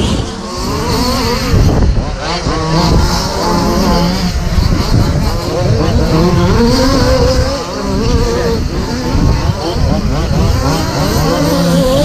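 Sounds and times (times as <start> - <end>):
rc truck motors whining: 0.0 - 12.0.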